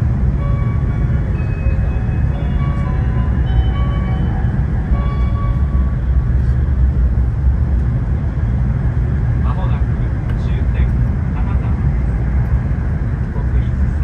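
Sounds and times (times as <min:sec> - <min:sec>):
train rumbling: 0:00.0 - 0:14.0
light melody of high notes: 0:00.4 - 0:06.0.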